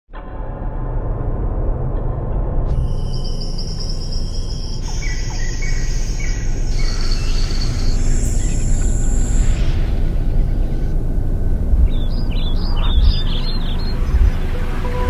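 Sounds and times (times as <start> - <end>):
deep steady rumble: 0.2 - 15.0
bird chirps: 2.8 - 10.9, 11.6 - 15.0
insects trilling: 2.8 - 15.0.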